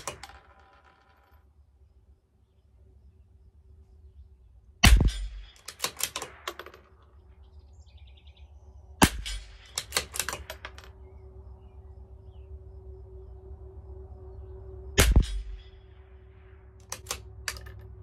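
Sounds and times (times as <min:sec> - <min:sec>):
rifle shots: 0:04.8 - 0:07.0, 0:09.0 - 0:10.8, 0:15.0 - 0:15.7
rifle bolt clicking: 0:05.5 - 0:06.8, 0:09.7 - 0:10.9, 0:16.8 - 0:17.9.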